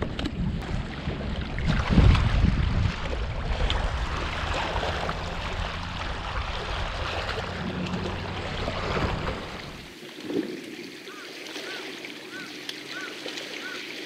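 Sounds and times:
wind buffeting microphone: 0:00.0 - 0:10.6
sea water washing on rocks: 0:00.0 - 0:14.0
low rumble: 0:00.4 - 0:09.9.

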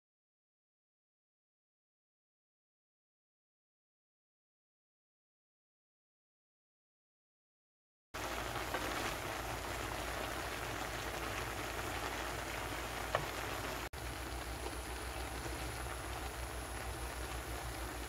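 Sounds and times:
vegetables sizzling in a frying pan: 0:08.2 - 0:18.0.

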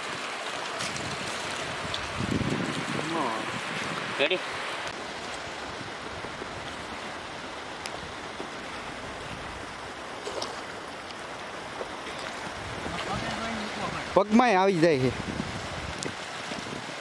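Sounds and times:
light water splashes: 0:00.0 - 0:17.0
water sloshing around legs: 0:08.4 - 0:14.0.

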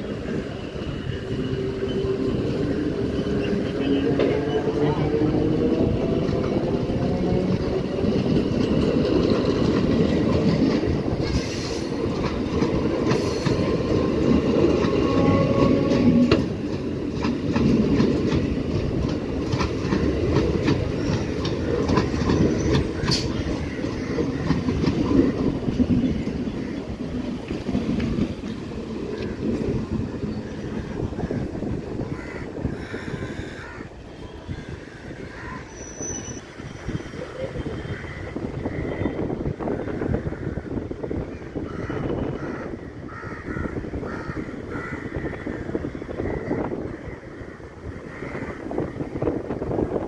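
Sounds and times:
train wheels clattering over rail joints: 0:05.7 - 0:31.6.

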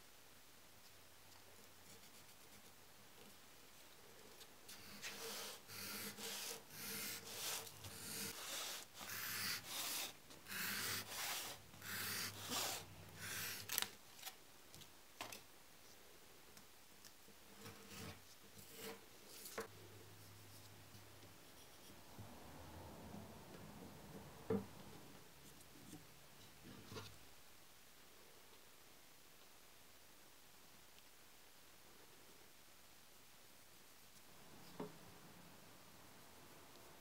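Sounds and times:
knife scraping through foam board: 0:04.7 - 0:13.7.

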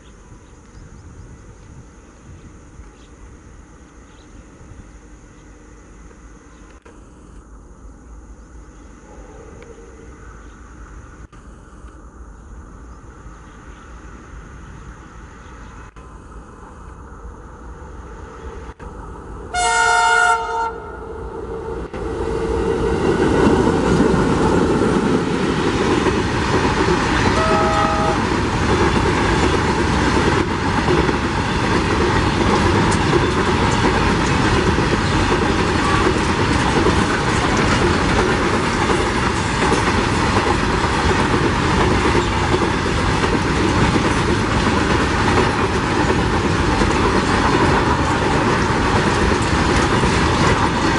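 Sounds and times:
train horn: 0:19.5 - 0:21.3, 0:27.2 - 0:28.4, 0:35.8 - 0:36.2
train wagons rumbling: 0:20.7 - 0:50.9
wheels clacking on rails: 0:21.9 - 0:50.9.

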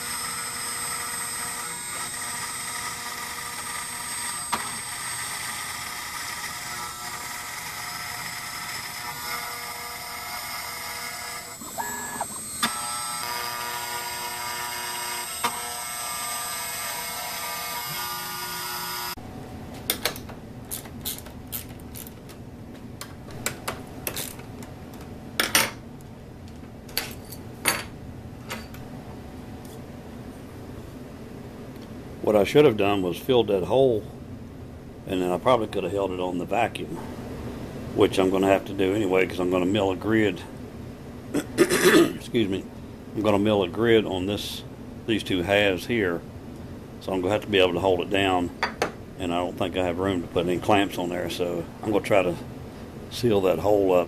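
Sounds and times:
cnc router spindle whine: 0:00.0 - 0:19.2.

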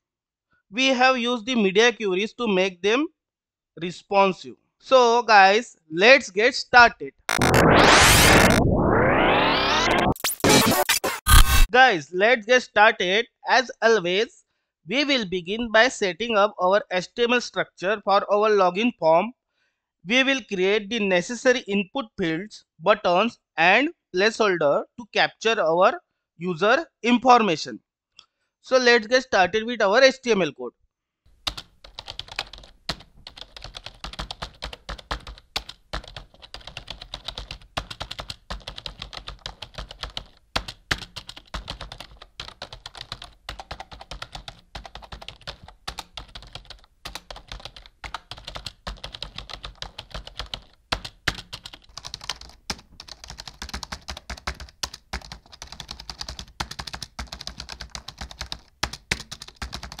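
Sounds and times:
typing on computer keyboard: 0:31.4 - 1:00.0.

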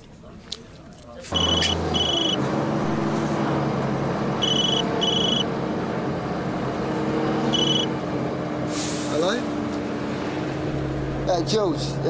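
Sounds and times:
bus engine drone: 0:00.0 - 0:12.0
mobile phone ringing: 0:01.4 - 0:02.4, 0:04.4 - 0:05.4.

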